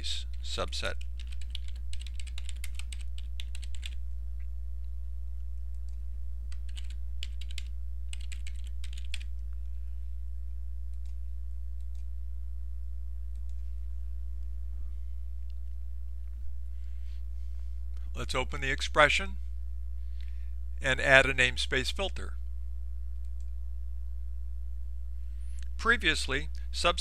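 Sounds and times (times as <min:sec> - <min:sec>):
low hum: 0:00.0 - 0:27.0
keyboard typing: 0:00.3 - 0:04.0, 0:05.7 - 0:09.4.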